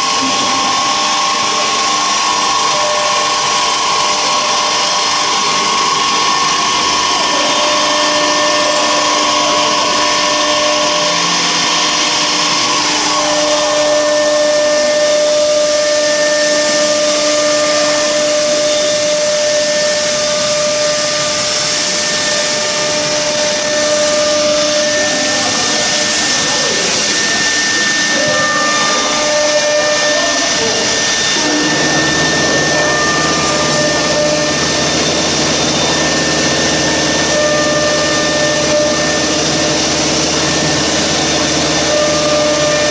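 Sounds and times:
circular saw whine: 0.0s - 42.9s
saw cutting hiss: 0.0s - 42.9s.

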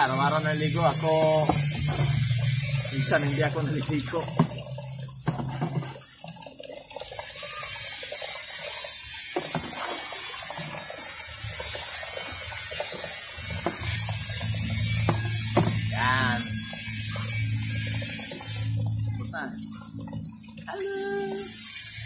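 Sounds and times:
water pouring and splashing: 0.0s - 22.0s
low hum: 0.1s - 5.9s, 13.5s - 21.6s.

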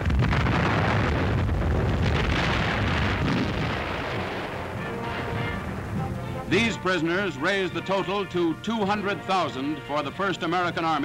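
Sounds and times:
artillery shell bursting: 0.0s - 8.0s
faint music: 4.6s - 11.0s.

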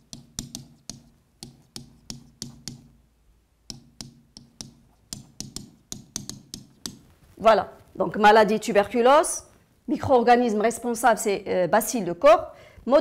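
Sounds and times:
pen tip tapping on board: 0.0s - 2.9s, 3.7s - 7.0s.

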